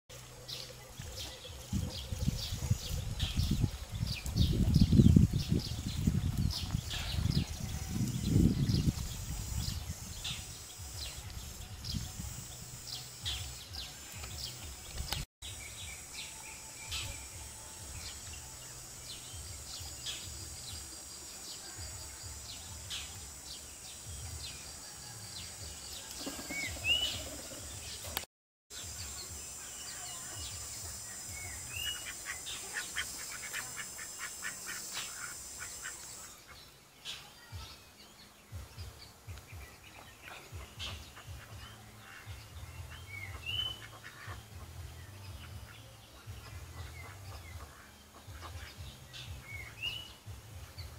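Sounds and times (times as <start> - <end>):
steady high hiss: 0.1 - 50.9
small birds chirping: 25.4 - 50.9.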